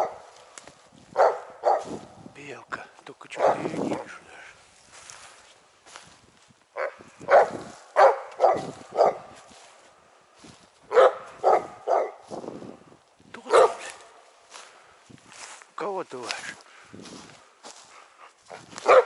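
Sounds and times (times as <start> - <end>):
dog barking: 0.0 - 0.3, 1.2 - 2.0, 3.4 - 3.7, 6.8 - 9.4, 10.9 - 12.2, 13.5 - 14.2, 18.5 - 19.0.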